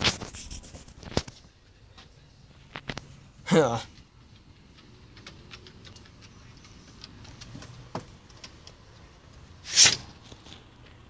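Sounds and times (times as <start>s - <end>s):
light clicks and taps: 3.9s - 9.4s.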